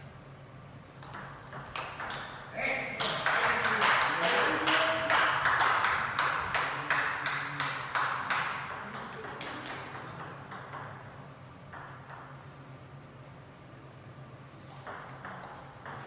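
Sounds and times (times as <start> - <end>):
table tennis ball bouncing: 1.0 - 12.5, 14.7 - 16.0.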